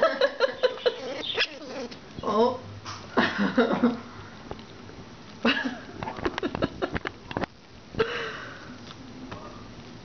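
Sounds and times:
squirrels chewing clicks and crunches: 4.2 - 5.4.

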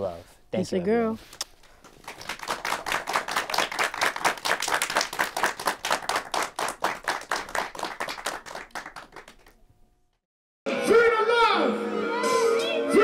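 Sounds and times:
people clapping: 1.8 - 9.6.

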